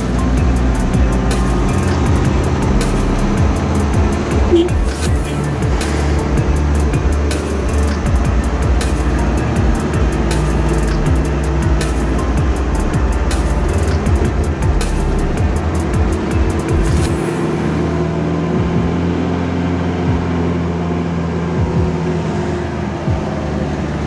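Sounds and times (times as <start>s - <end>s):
electronic dance music: 0.0s - 17.5s
vehicle engine droning: 0.0s - 24.0s.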